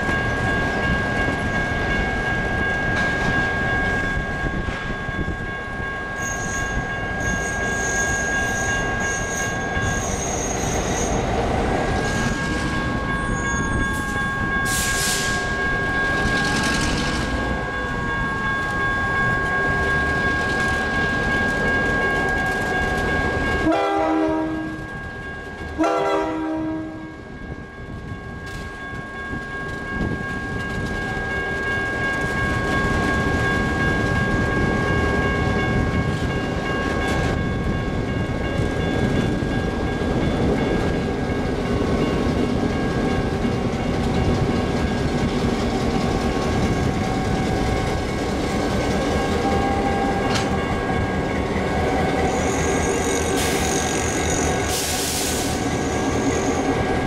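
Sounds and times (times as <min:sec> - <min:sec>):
freight train rumbling: 0:00.0 - 0:57.0
wheel squeal: 0:06.2 - 0:11.2, 0:12.0 - 0:15.4, 0:52.3 - 0:56.7
locomotive horn blasts: 0:23.6 - 0:24.8, 0:25.8 - 0:27.2, 0:49.3 - 0:50.5.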